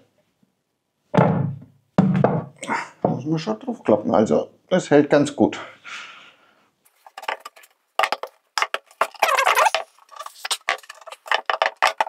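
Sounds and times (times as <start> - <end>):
wooden pieces knocking: 7.0 - 12.0.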